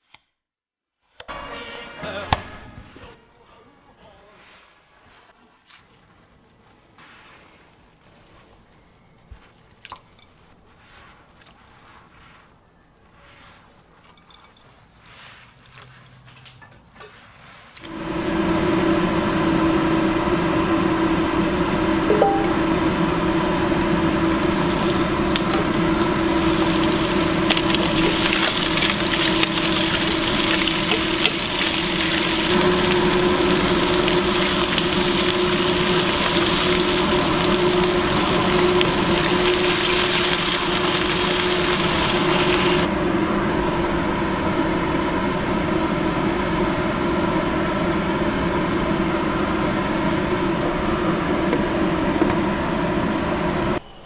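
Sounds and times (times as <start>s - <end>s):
steady hum: 17.8s - 54.0s
fish sizzling in hot oil: 22.8s - 42.9s.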